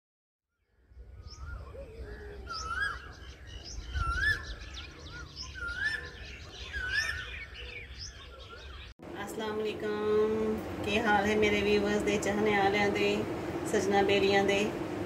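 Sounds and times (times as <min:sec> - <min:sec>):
birds chirping: 0:00.6 - 0:15.0
bird whistling phrase: 0:01.2 - 0:08.8
low steady rumble: 0:09.0 - 0:15.0.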